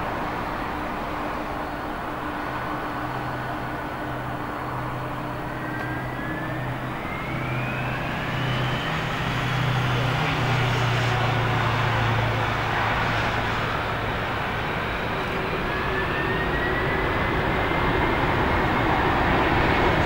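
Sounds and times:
jet engines spooling up: 0.0s - 20.0s.

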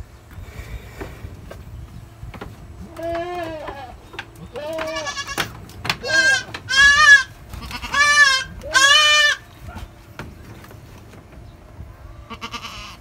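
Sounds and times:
goat kid bleating: 2.8s - 9.7s, 12.2s - 13.0s.

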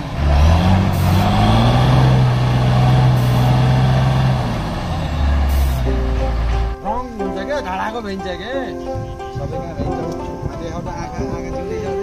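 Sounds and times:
truck engine running: 0.0s - 8.0s.

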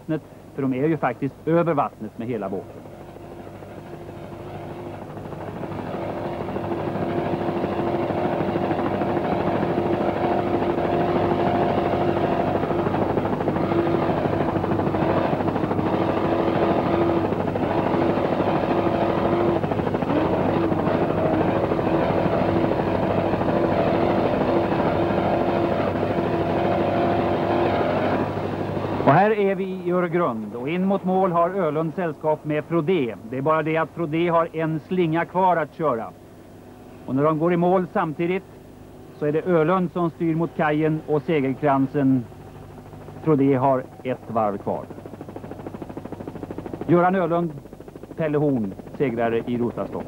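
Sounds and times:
engines droning: 0.7s - 50.0s.

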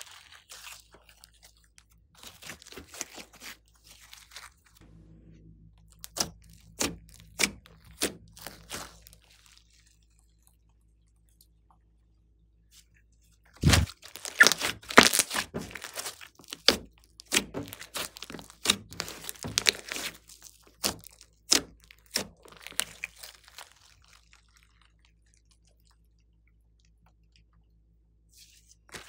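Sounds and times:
slime popping and crackling: 5.9s - 10.5s, 13.6s - 25.8s.

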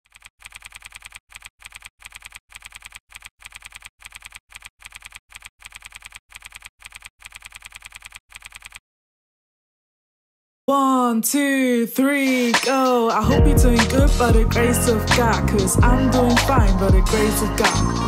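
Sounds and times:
keyboard typing clicks: 0.0s - 8.8s.

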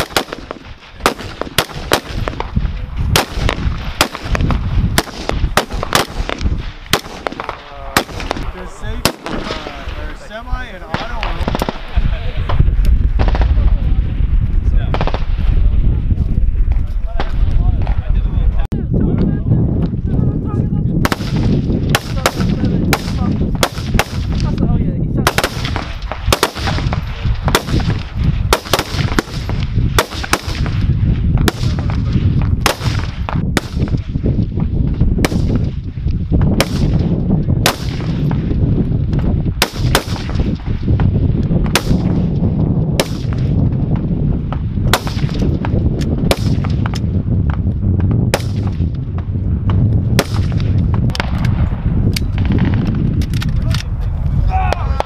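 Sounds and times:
rifle shots echoing: 0.0s - 10.2s, 10.8s - 11.9s, 14.9s - 15.5s, 21.0s - 24.6s, 25.2s - 34.0s, 35.2s - 35.8s, 36.6s - 38.5s, 39.6s - 40.7s, 41.6s - 42.3s, 43.0s - 43.6s, 44.9s - 47.1s, 48.3s - 48.9s, 50.1s - 51.7s
steady low rumble: 0.0s - 55.0s.

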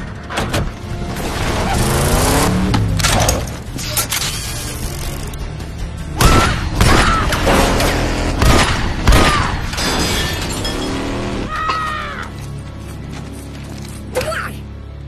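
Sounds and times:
action film music: 0.0s - 15.0s
heavy gunshots: 6.2s - 10.1s.

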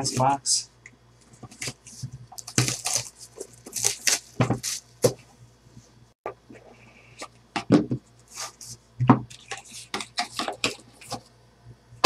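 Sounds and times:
cardboard and plastic rustling: 1.3s - 5.3s.

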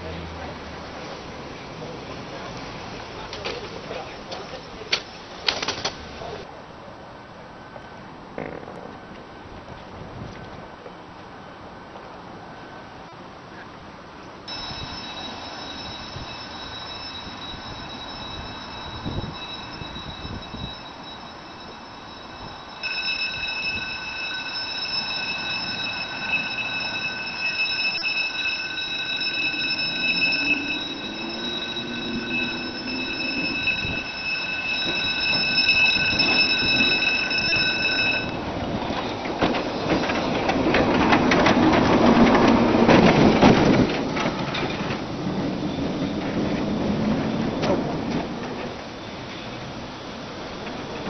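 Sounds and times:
tram rumbling over track: 0.0s - 51.0s
tram wheels squealing on rails: 14.5s - 51.0s.

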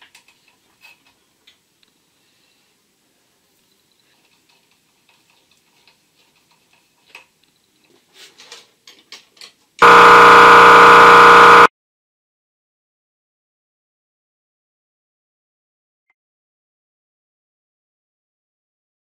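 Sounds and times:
air compressor running loud: 9.8s - 11.7s.

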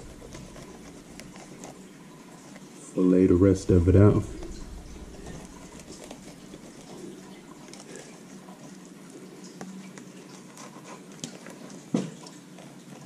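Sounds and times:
knife scraping fish: 0.0s - 1.9s, 4.3s - 8.2s.

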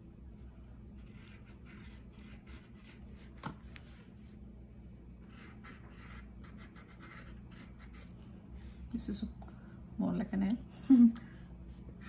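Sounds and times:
crayon scratching across paper: 5.3s - 8.1s.

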